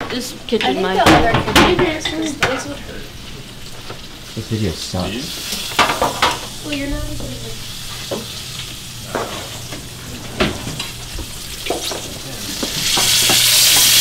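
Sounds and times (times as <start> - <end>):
bacon sizzling in a frying pan: 0.2 - 14.0
utensils knocking and clattering: 0.6 - 2.7, 5.6 - 7.3, 9.1 - 14.0.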